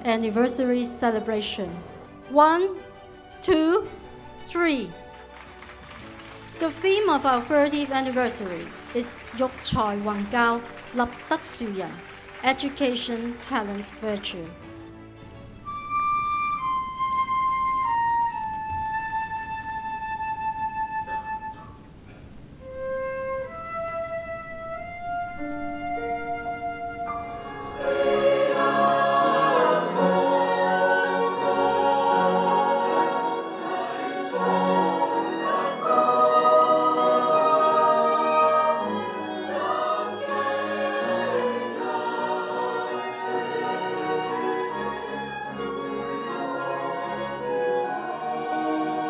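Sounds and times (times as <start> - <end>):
string ensemble: 0.0 - 18.4, 25.1 - 49.0
solo flute melody: 15.5 - 21.9, 22.6 - 28.2, 30.3 - 49.0
mixed choir singing: 27.5 - 49.0.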